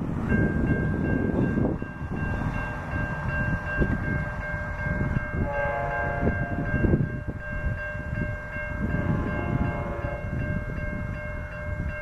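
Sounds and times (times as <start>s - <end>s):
crossing warning bell ringing: 0.0s - 12.0s
train horn: 5.3s - 7.0s, 8.8s - 10.4s.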